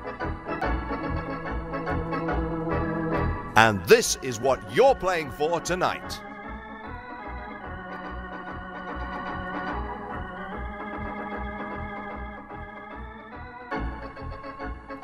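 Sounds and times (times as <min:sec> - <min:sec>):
organ chords: 0:03.4 - 0:14.6.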